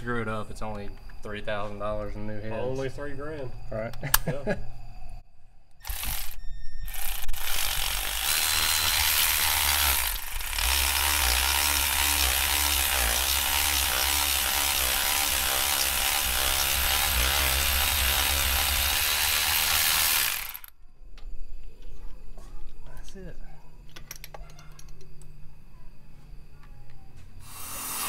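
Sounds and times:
cordless ratchet motor whining: 5.8 - 20.7.

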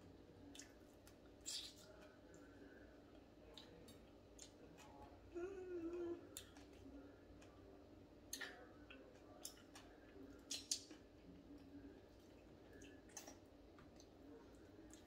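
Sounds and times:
mouth smacks and clicks eating: 0.5 - 2.4, 8.3 - 14.2.

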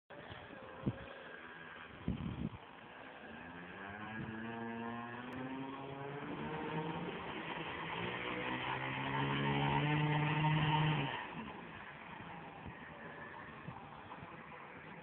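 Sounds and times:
model airplane engine revving: 3.0 - 11.9.

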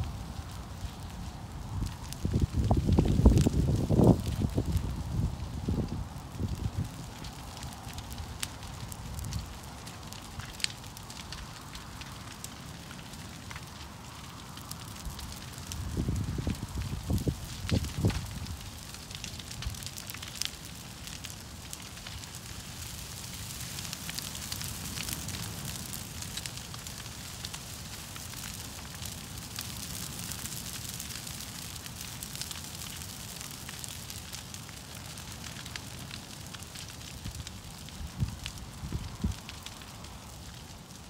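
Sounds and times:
burning wood crackling and popping: 0.0 - 41.0
rushing flames: 0.0 - 41.0.

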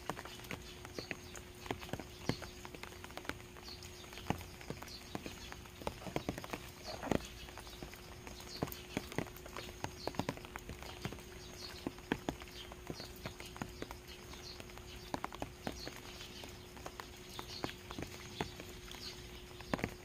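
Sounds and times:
rain drops tapping on ground: 0.0 - 20.0.

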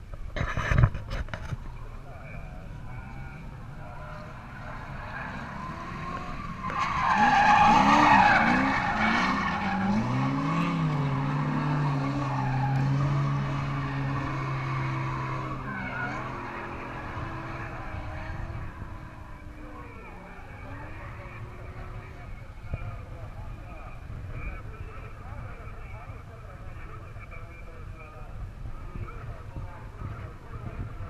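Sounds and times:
car engine revving: 2.2 - 26.0
tyres squealing: 4.8 - 17.4.

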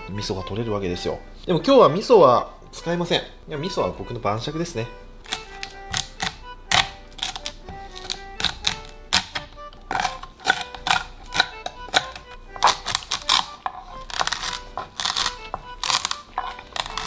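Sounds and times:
quiet background music: 0.0 - 17.0
knife cutting crab shells: 5.2 - 17.0
roller crunching crab leg: 5.2 - 17.0.

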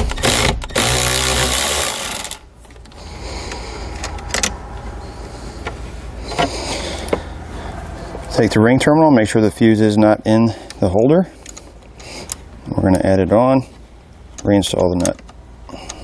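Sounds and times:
cordless ratchet spinning: 0.0 - 2.4.

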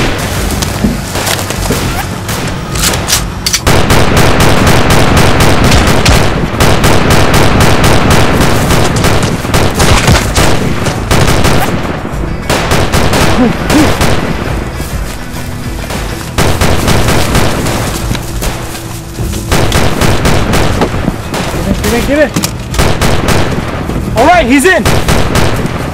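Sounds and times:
rifle shots: 1.2 - 14.6, 15.9 - 18.8, 19.4 - 25.9
rapid machine gun fire: 3.6 - 11.9, 12.5 - 14.5, 15.9 - 18.6, 19.5 - 25.9.

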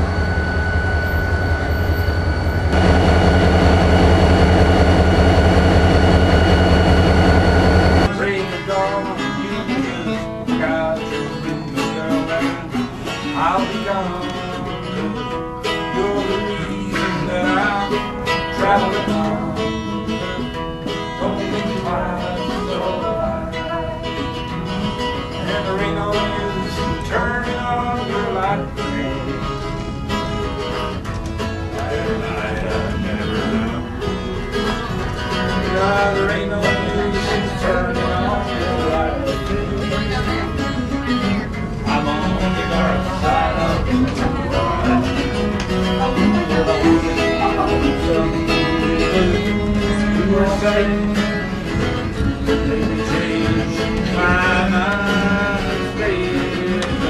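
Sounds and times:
diesel locomotive engine drone: 0.0 - 8.1
acoustic guitars country tune: 0.0 - 57.0.

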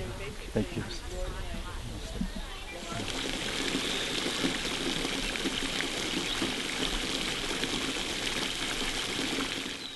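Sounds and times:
fountain splashing into water: 2.7 - 9.9.

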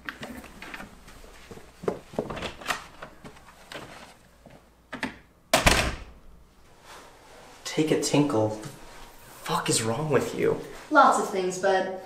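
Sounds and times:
door shutting with a bang: 5.5 - 6.2.

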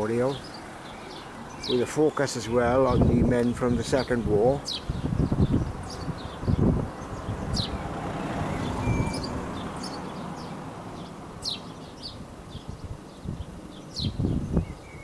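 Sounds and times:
small birds chirping: 0.0 - 15.0
vehicle passing: 4.8 - 12.6.

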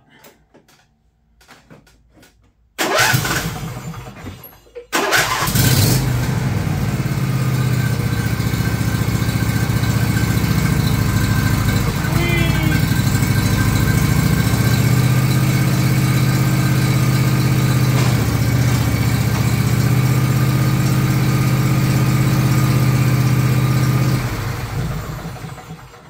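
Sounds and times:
electric starter cranking: 2.8 - 23.3
lawn tractor engine running: 2.8 - 26.0.

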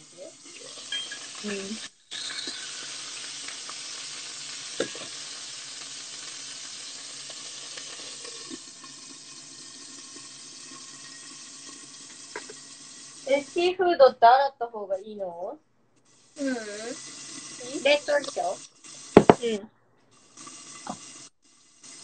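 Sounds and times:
food sizzling in a pan: 0.0 - 14.2, 16.1 - 22.0
sharp knock: 19.2 - 19.4.

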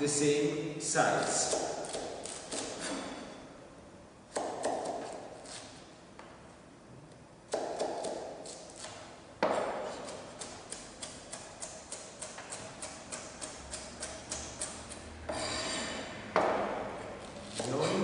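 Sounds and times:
knife chopping on cutting board: 1.2 - 3.1, 4.3 - 5.7, 7.5 - 15.8, 16.4 - 18.0.

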